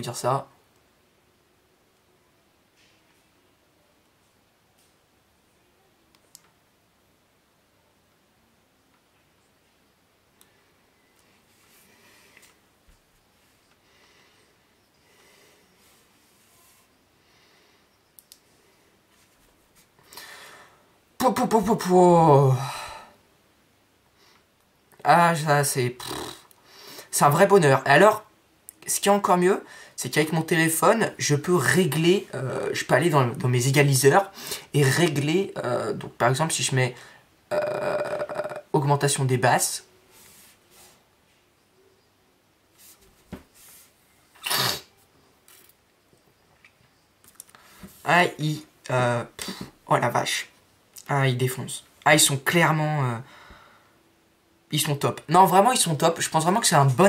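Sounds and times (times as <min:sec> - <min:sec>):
faint click: 0:18.1 - 0:18.4
man's impressed exclamation: 0:37.5 - 0:38.8
person exhaling through nose: 0:44.4 - 0:45.0.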